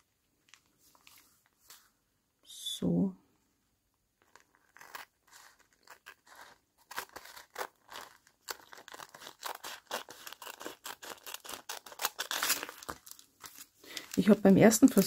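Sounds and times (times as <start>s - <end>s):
scissors snipping cellophane: 4.4s - 13.2s.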